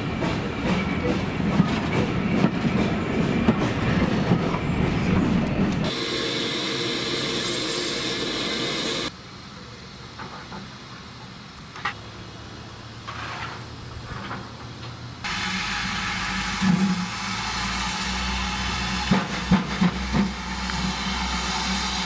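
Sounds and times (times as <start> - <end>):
faint railway yard sounds: 0.0 - 22.0
steam hissing: 5.8 - 9.1, 15.3 - 22.0.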